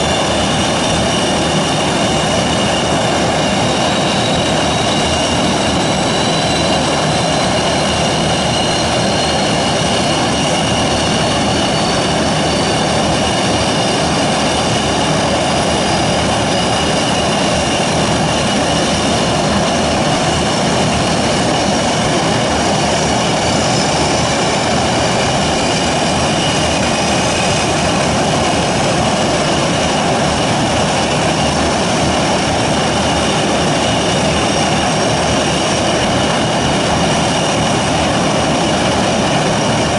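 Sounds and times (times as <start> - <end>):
high turbine whine: 0.0 - 39.9
turboprop engines droning: 0.0 - 39.9.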